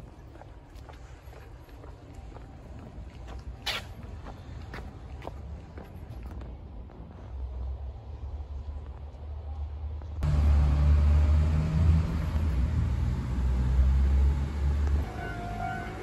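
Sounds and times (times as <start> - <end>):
vehicle rumble from inside: 10.1 - 16.0.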